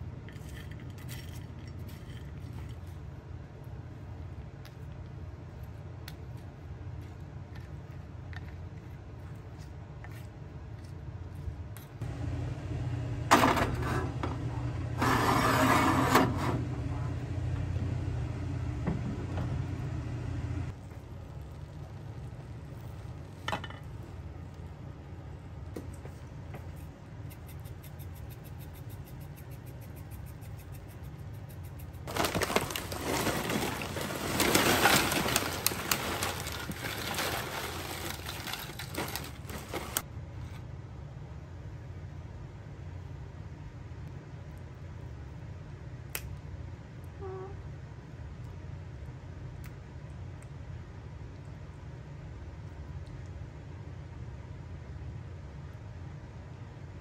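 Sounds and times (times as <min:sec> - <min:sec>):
low steady hum: 0:00.0 - 0:57.0
chips poured into a bowl: 0:32.1 - 0:40.0
plastic bag crinkling: 0:32.1 - 0:40.0.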